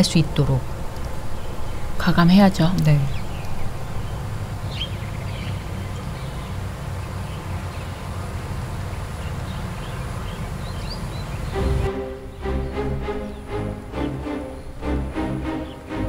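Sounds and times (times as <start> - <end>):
bird chirps: 1.2 - 8.2, 8.8 - 16.0
music: 11.5 - 16.0.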